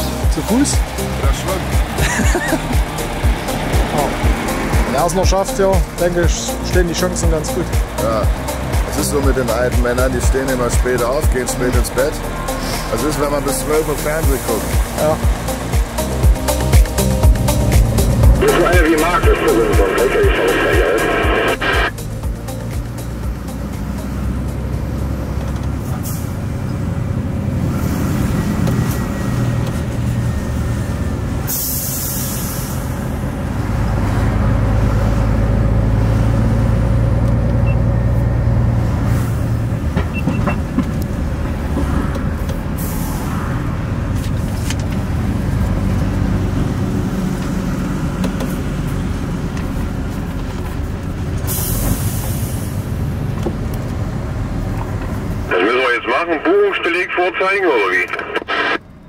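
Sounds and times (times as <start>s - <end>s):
truck diesel engine rumble: 0.0s - 59.0s
air brake hiss: 31.5s - 32.9s, 42.8s - 43.4s, 51.5s - 52.9s.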